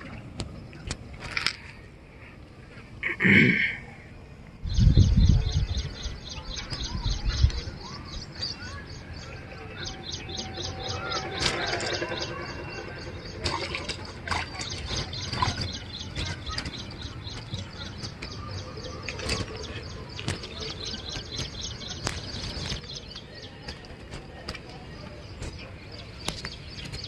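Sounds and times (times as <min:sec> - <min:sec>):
rapid high-pitched chirping: 0:04.8 - 0:23.6.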